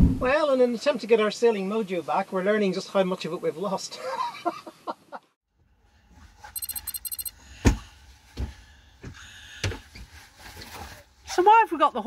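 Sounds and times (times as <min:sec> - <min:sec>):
rapid high-pitched chirping: 0:06.6 - 0:07.3.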